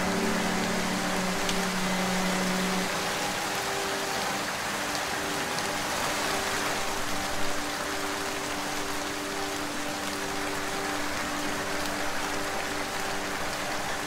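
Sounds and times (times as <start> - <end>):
soft low relaxation music: 0.0 - 14.0
steady rain falling: 0.0 - 14.0.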